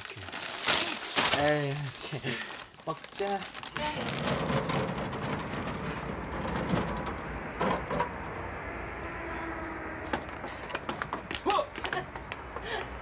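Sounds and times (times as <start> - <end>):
traffic rumble: 0.0 - 13.0
knocks and clatter: 4.0 - 8.2.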